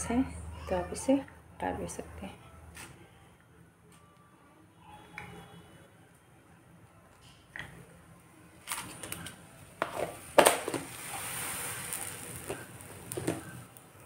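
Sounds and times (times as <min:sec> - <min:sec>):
milk boiling with fizzing hiss: 0:08.7 - 0:14.0.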